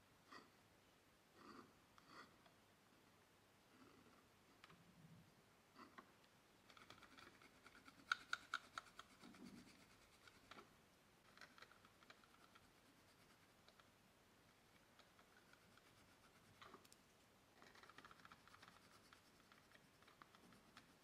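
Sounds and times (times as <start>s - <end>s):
oil pastel scratching on paper: 6.8s - 10.7s, 11.5s - 13.8s, 14.7s - 16.9s, 17.6s - 21.0s.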